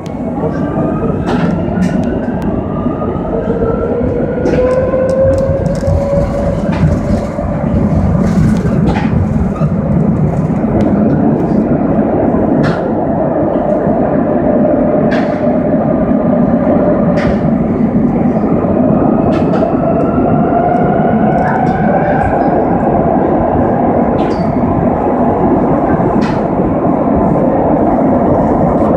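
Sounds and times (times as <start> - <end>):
train wheels rumbling on rail: 0.0 - 28.9.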